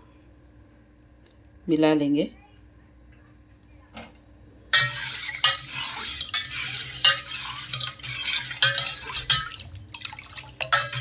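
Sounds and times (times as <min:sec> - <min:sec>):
spoon clinking in metal bowl: 0:04.8 - 0:11.0.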